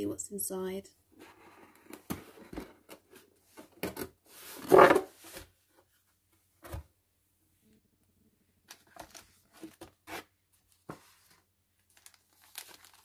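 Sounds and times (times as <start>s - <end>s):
cardboard sliding scrape: 4.3s - 5.6s.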